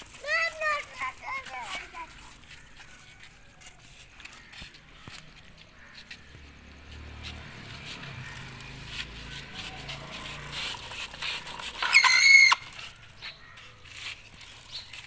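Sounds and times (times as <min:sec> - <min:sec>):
toy motor whirring: 0:00.0 - 0:05.4, 0:07.0 - 0:15.0
short high-pitched squeal: 0:11.7 - 0:13.0.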